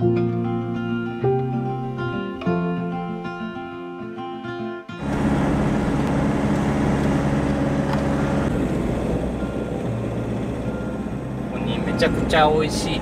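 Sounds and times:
acoustic guitar music: 0.0s - 13.0s
car engine and road noise: 4.9s - 13.0s.

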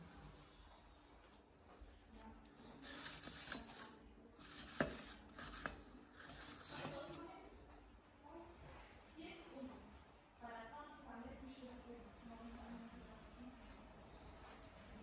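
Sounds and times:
flower stems rustling: 2.4s - 7.4s.

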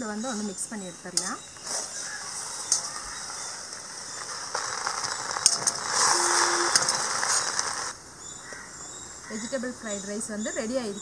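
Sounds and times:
spatula scraping wok: 1.5s - 7.9s.

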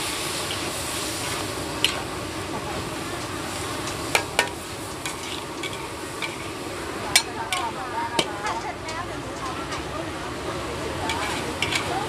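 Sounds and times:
food sizzling in wok: 0.0s - 12.0s
spatula clanking against pan: 4.1s - 6.5s, 7.1s - 9.9s, 11.1s - 12.0s.

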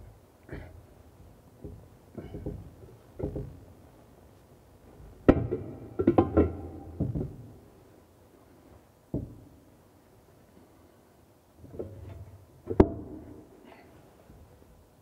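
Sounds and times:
clattering knocks with ring: 5.3s - 7.4s, 9.1s - 9.4s.

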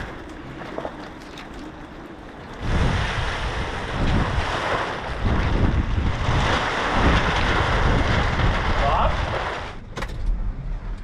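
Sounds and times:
wind buffeting microphone: 0.0s - 10.6s
plastic sheet flapping and rustling: 2.6s - 9.9s.

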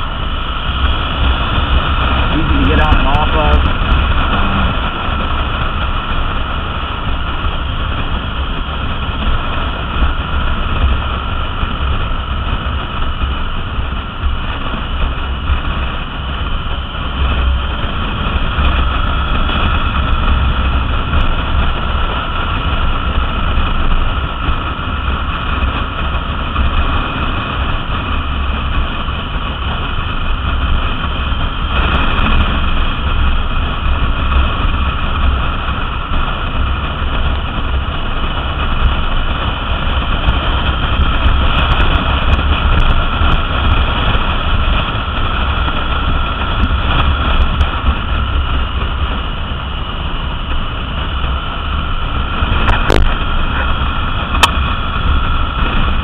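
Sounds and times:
motorcycle engine cruising: 0.0s - 56.0s
wind buffeting microphone: 0.0s - 56.0s.

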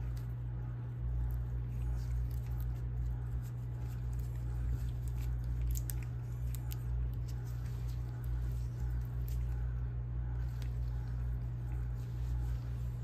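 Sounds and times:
steady low hum: 0.0s - 13.0s
gloved hands ticking and rustling: 1.1s - 13.0s.

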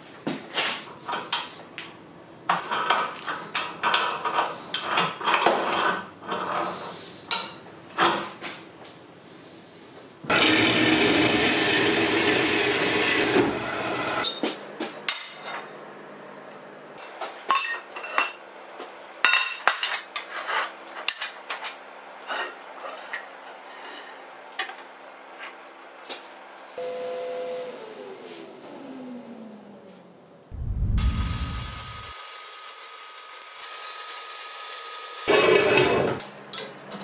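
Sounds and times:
loud rushing noise: 30.5s - 32.2s.

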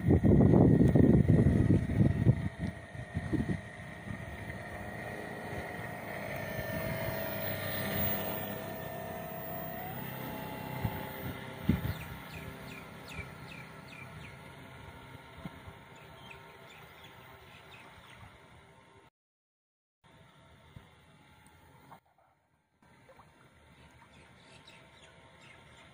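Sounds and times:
electric motor whine of rc boat: 0.0s - 19.0s, 20.1s - 22.0s
bird chirping: 11.7s - 14.4s.

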